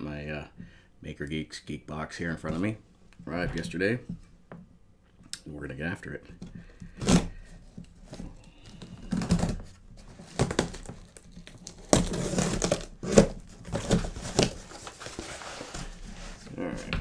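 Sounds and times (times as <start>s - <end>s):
cardboard flaps and packing rustling: 6.4s - 17.0s
tape tearing: 6.9s - 16.5s.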